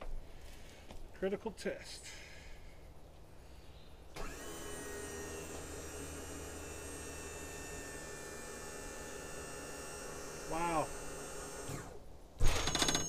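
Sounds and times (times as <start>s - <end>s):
electric motor whining: 4.2s - 12.0s.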